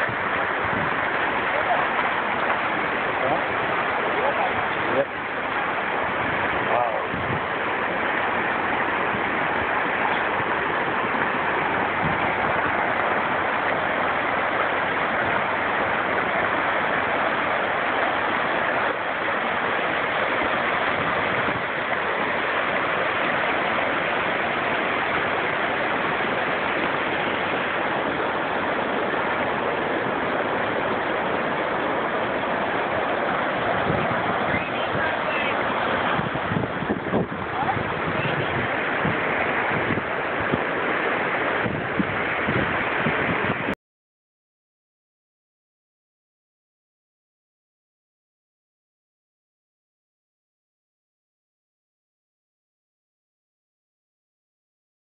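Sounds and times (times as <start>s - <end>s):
river water rushing: 0.0s - 43.8s.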